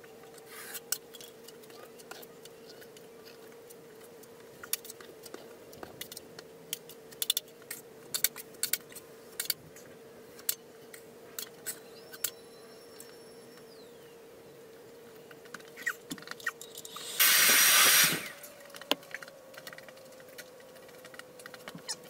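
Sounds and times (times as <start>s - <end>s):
steady low hum: 0.0s - 22.0s
faint high whine: 10.9s - 22.0s.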